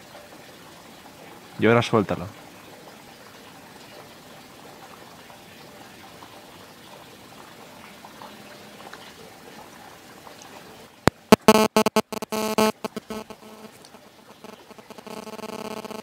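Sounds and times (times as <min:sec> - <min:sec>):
distorted electronic beep: 0:11.1 - 0:13.7, 0:14.4 - 0:16.0
background hiss: 0:11.1 - 0:16.0.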